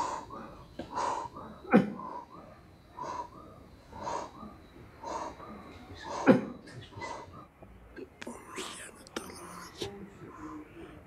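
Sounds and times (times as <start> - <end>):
man wheezing breathing: 0.0 - 2.3.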